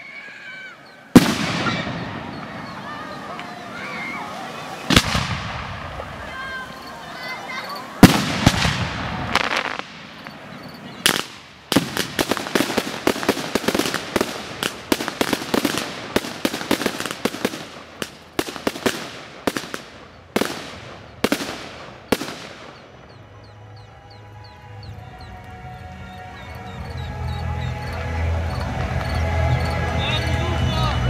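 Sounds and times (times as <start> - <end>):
fireworks booms: 1.1 - 23.3
fireworks bangs and crackles: 1.1 - 23.5, 26.6 - 31.0.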